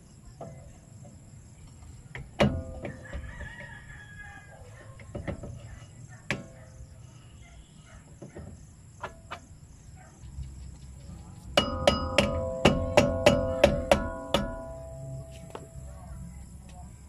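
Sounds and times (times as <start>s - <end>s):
mallet striking metal drum: 11.6s - 15.2s
metal drum ringing: 11.6s - 15.3s.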